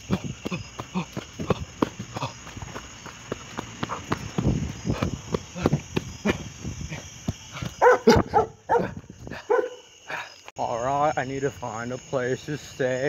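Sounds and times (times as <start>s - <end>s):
hurried footsteps: 0.0s - 9.6s
dog barking: 7.8s - 9.9s.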